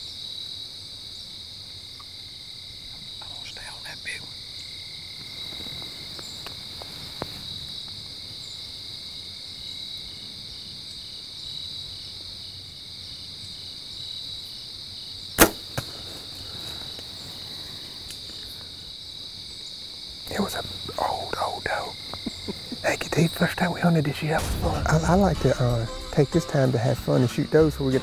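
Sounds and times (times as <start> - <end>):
crickets and insects trilling: 0.0 - 28.0
bow string snap: 15.4 - 16.0.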